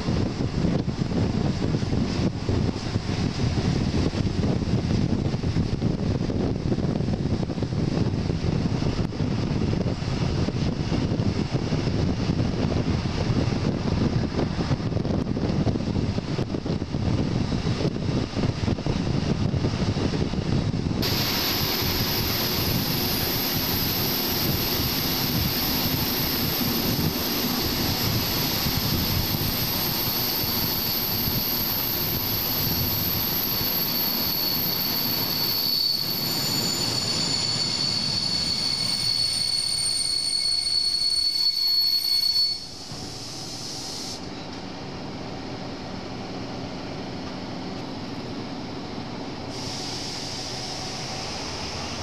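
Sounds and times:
train wheels rumbling on track: 0.0s - 52.0s
high wheel squeal: 21.0s - 44.3s.

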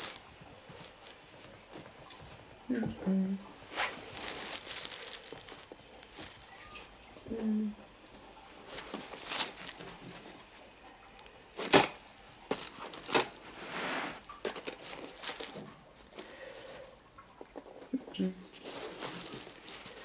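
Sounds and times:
ruler scraping on fabric: 13.4s - 14.2s.

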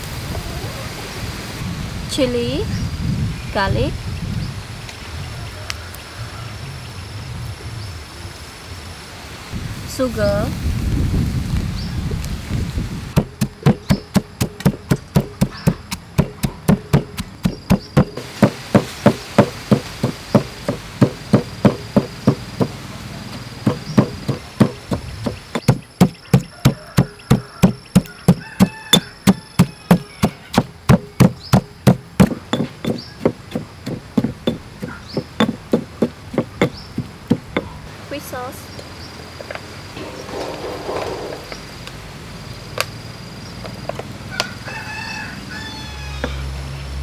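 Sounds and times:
pestle pounding in stone mortar: 13.1s - 37.8s.

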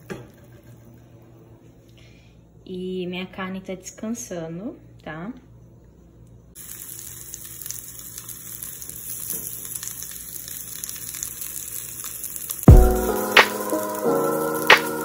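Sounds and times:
okra sizzling in oil: 6.6s - 15.0s
background music: 12.7s - 15.0s.

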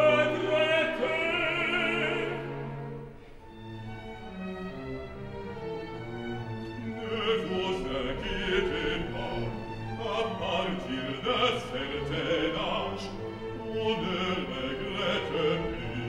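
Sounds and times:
man singing opera: 0.0s - 2.9s, 6.9s - 16.0s
orchestral accompaniment: 0.0s - 16.0s.

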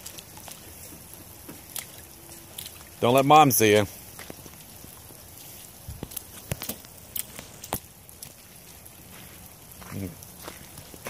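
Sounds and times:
rubber boots stepping in mud: 0.0s - 3.0s, 4.0s - 11.0s.

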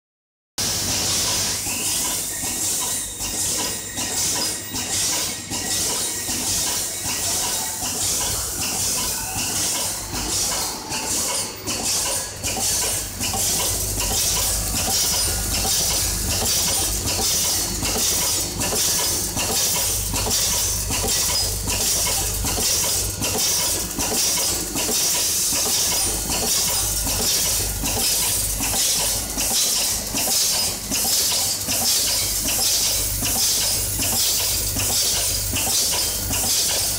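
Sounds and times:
machine rhythmic knocking: 0.6s - 36.9s
low machine hum: 6.3s - 34.7s.

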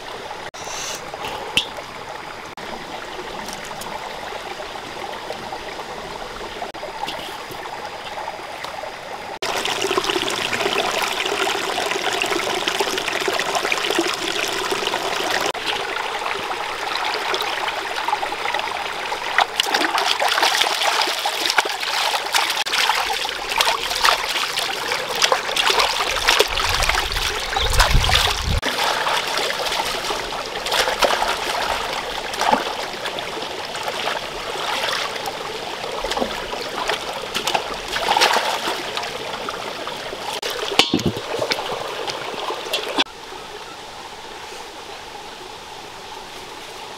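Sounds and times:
stream flowing and trickling: 0.0s - 46.9s
water splashing in a metal wok: 36.0s - 39.1s, 40.3s - 43.1s.

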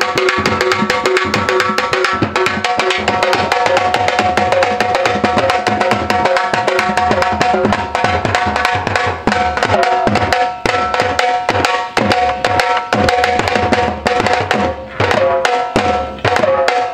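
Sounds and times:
barrel drums played with sticks: 0.0s - 16.9s.

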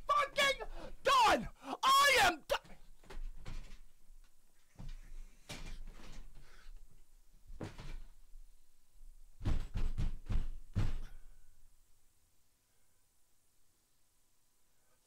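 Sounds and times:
furniture thuds and knocks: 7.5s - 8.2s, 9.4s - 11.2s.

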